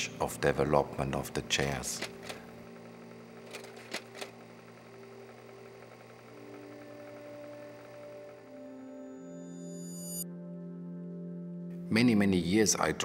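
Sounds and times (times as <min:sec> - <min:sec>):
quiet music of long held notes: 0:00.0 - 0:13.0.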